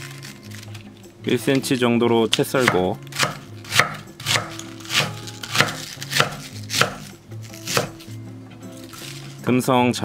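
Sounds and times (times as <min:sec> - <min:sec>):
knife slicing cabbage on board: 0:02.6 - 0:08.2.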